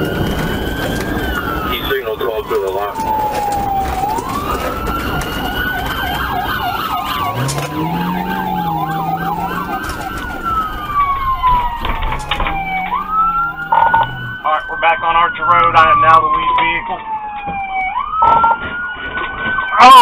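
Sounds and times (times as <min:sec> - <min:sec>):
road noise: 0:00.0 - 0:17.4
police sirens wailing: 0:00.0 - 0:20.0
car engine revving: 0:02.9 - 0:14.7.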